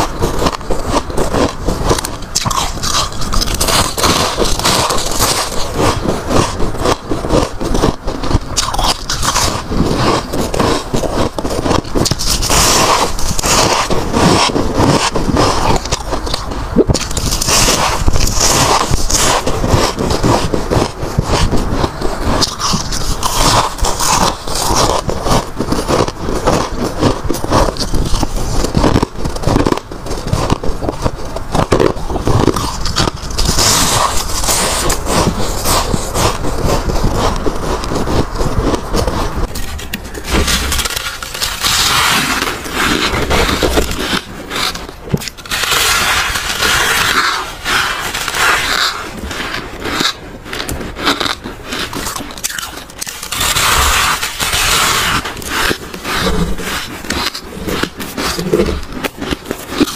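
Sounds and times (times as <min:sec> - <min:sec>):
bites crunching freezer frost: 0:00.0 - 0:59.9.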